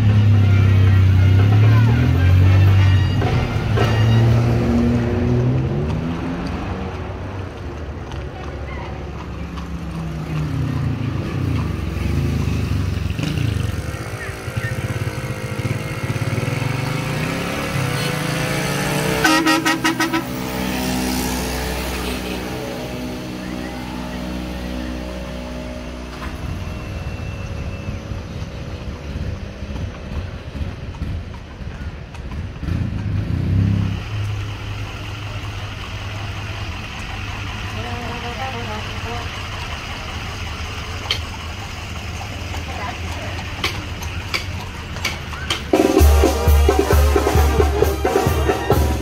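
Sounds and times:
vehicle engines running: 0.0s - 49.0s
car horn short toots: 2.6s - 4.6s, 19.2s - 20.3s.

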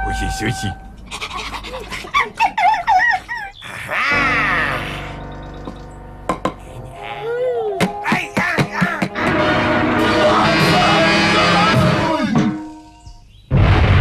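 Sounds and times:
held musical tones: 0.0s - 1.1s, 4.1s - 13.2s
squeaky warbling cartoon voices: 0.6s - 5.2s, 6.7s - 9.3s.

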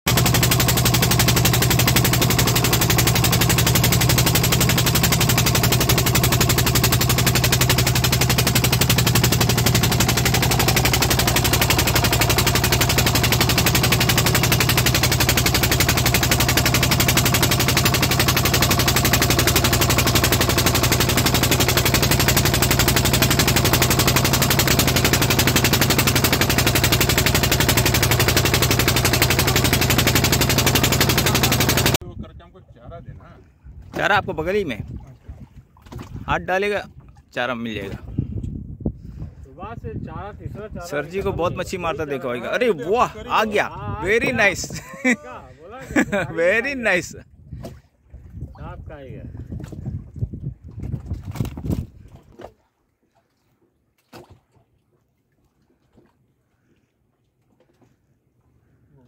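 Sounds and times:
boat engine chugging: 0.1s - 32.0s, 40.8s - 47.2s.

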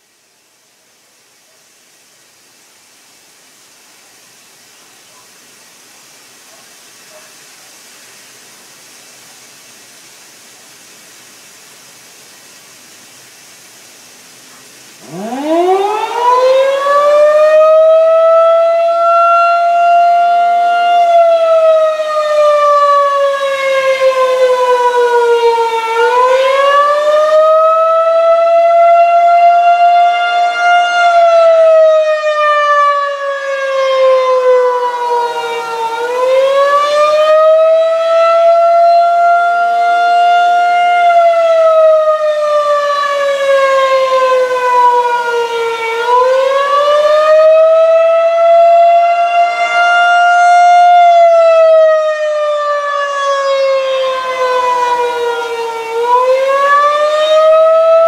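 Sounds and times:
rotating warning siren: 15.0s - 58.0s.

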